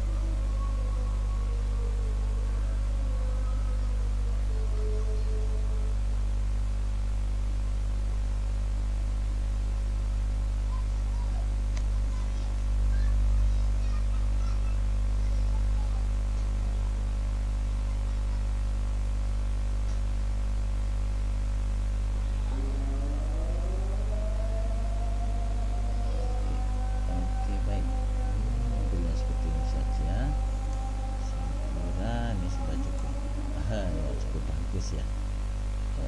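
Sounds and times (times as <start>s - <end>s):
electrical mains hum: 0.0s - 36.0s
rising pitched tone: 22.4s - 35.1s
static hiss: 27.0s - 36.0s.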